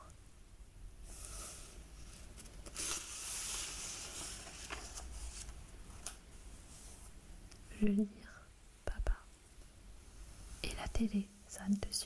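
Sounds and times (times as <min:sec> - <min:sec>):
book page turning: 0:02.0 - 0:06.2.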